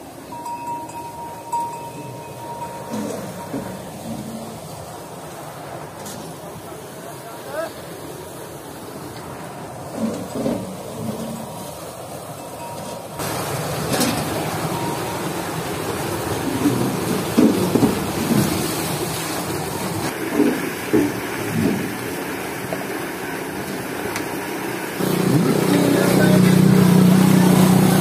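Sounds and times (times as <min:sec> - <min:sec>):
water rushing through paddle wheel: 0:00.0 - 0:28.0
louder splashes or knocks: 0:16.4 - 0:18.8.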